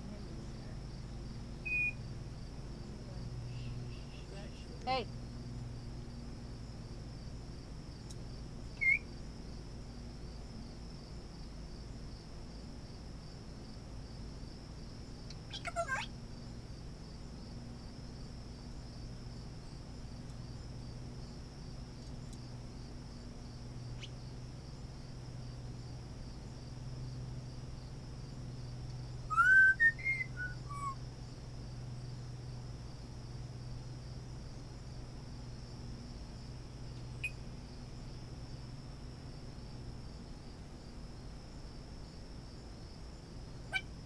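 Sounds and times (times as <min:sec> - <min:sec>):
low hum: 0:00.0 - 0:15.5, 0:16.1 - 0:44.0
high insect trill: 0:00.0 - 0:44.0
parrot whistling: 0:01.6 - 0:02.0, 0:08.8 - 0:09.0, 0:29.3 - 0:31.0.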